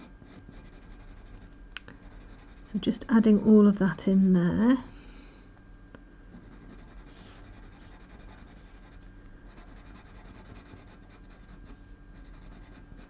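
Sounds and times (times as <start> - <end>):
pencil scribbling on paper: 0.0 - 2.7, 6.4 - 13.0.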